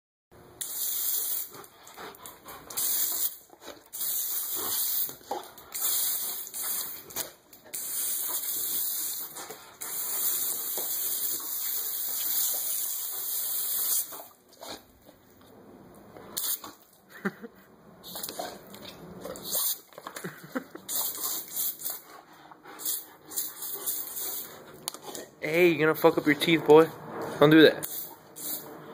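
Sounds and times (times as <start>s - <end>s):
garden hose spraying water on concrete: 0.6s - 14.8s, 16.3s - 17.4s, 19.3s - 26.8s, 27.4s - 28.7s.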